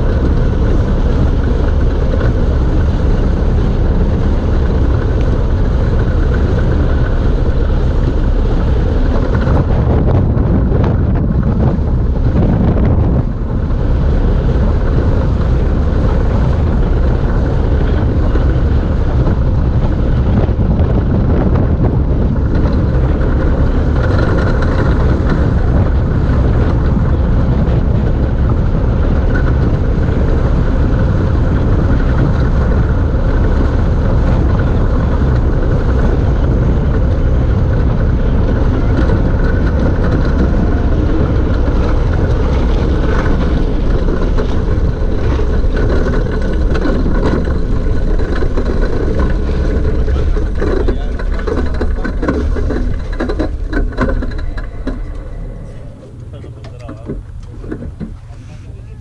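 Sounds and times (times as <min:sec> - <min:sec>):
chassis knocks and rattles: 0:00.0 - 0:58.4
tyres rolling on asphalt: 0:00.0 - 0:59.0
wind on microphone: 0:00.0 - 0:59.0.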